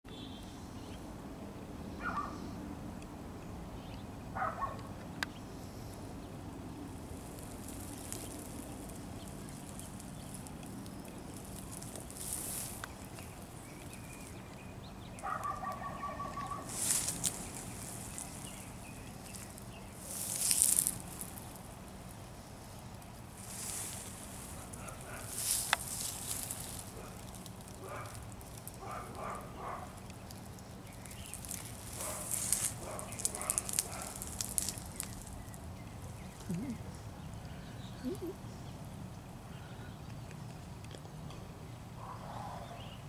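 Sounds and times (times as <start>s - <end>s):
bird calls: 7.6s - 21.4s, 28.8s - 38.8s.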